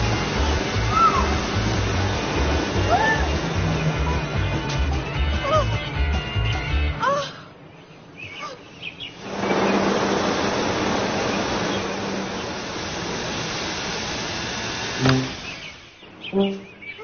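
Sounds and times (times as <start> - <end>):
rush of air from blower: 0.0 - 4.2, 9.2 - 15.9
low motor hum: 0.0 - 6.6, 9.2 - 17.0.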